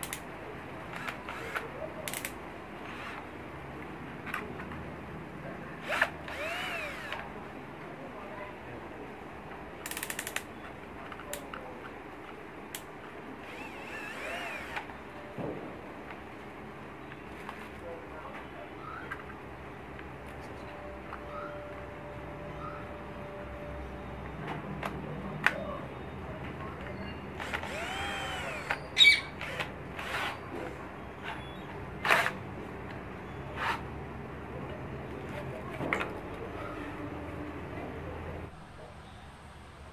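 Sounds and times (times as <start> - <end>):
cordless drill motor whine: 5.8 - 7.2, 13.4 - 14.9, 27.4 - 30.4
drill trigger and chuck clicks: 5.8 - 7.3, 27.4 - 28.8, 29.4 - 30.3.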